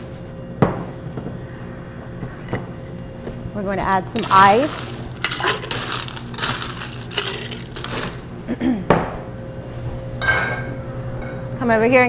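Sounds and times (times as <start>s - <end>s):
ice cubes clinking in glass: 4.1s - 8.3s.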